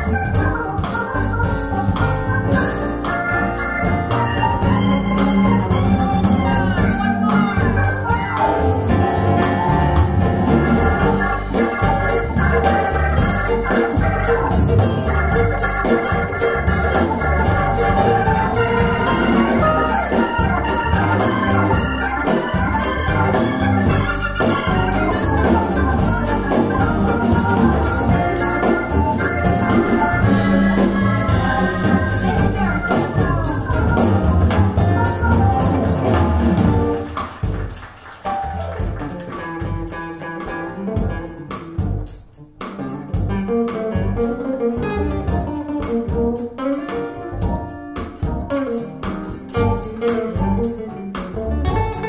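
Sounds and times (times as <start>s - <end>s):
music through speakers: 0.0s - 37.0s.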